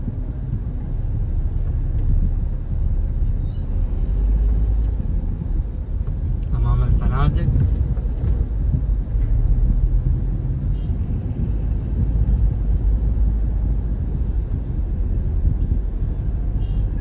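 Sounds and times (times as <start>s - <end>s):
car engine rumble: 0.0s - 17.0s
road noise: 0.0s - 17.0s.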